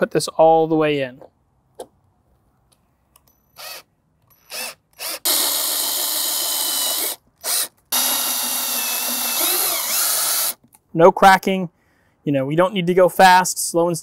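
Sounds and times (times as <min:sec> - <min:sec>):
cordless drill whining: 0:03.6 - 0:10.6.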